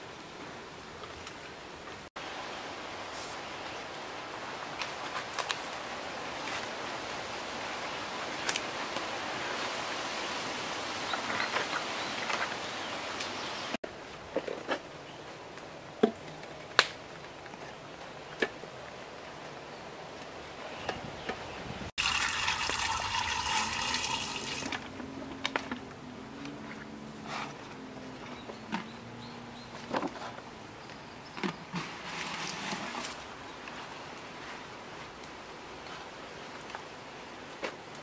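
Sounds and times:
water pouring and splashing: 0:21.9 - 0:24.9, 0:31.8 - 0:33.6.

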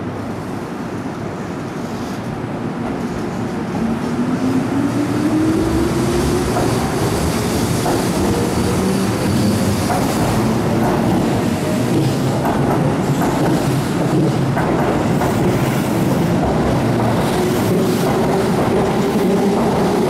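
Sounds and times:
train running noise: 0:00.0 - 0:20.0.

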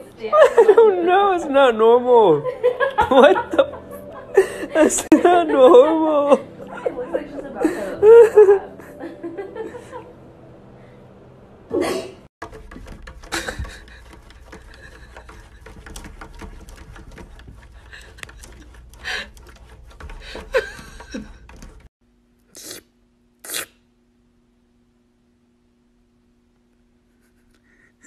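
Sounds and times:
cat claws scratching window: 0:12.4 - 0:21.9.

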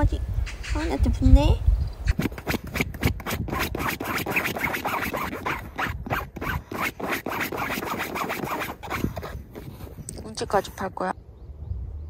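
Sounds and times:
dog paws scratching fabric: 0:02.1 - 0:10.7.

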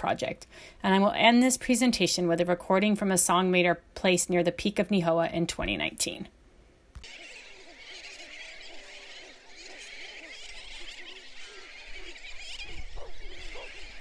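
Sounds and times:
high-pitched bird chorus: 0:07.0 - 0:14.0
low wavering bird moans: 0:07.0 - 0:14.0.

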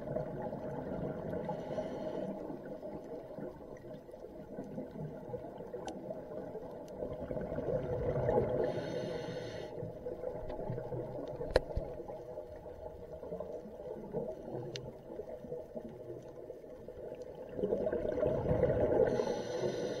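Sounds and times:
diver exhaling bubbles: 0:17.5 - 0:19.3
regulator hiss: 0:19.1 - 0:20.0.

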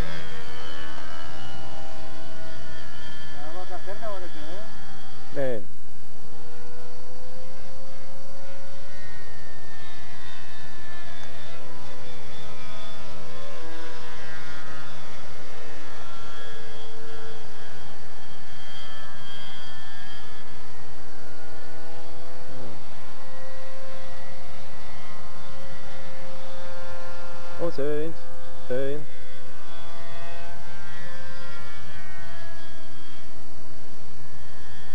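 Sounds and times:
model airplane engine at high revs: 0:00.0 - 0:34.9.

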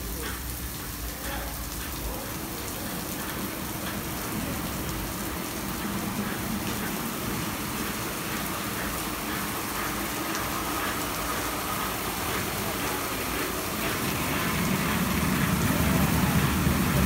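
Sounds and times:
water spray hissing: 0:00.0 - 0:17.0
car wash brushes spinning: 0:05.6 - 0:17.0.

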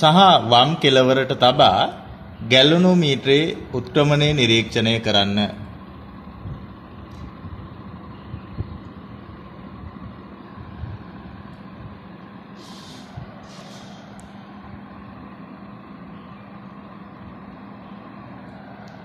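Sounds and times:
steady background hum: 0:00.0 - 0:19.0
brief hissy rustles: 0:12.6 - 0:14.2.

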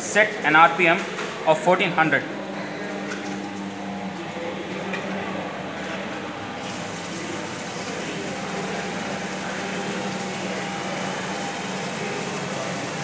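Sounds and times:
pump motor running: 0:00.0 - 0:13.0
water rushing through pipes: 0:06.6 - 0:13.0.

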